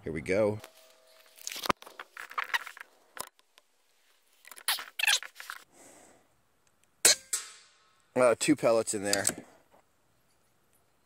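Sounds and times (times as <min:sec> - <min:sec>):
rifle handling clicks and rustles: 0:00.6 - 0:03.7, 0:09.0 - 0:10.9.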